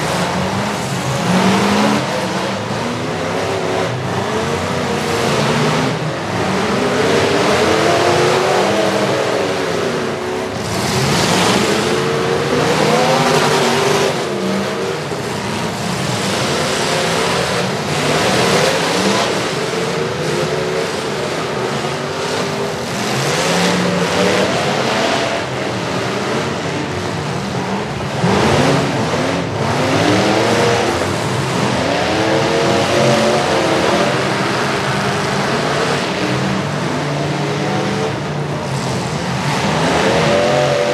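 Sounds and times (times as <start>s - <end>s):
car engines revving: 0.0s - 40.9s.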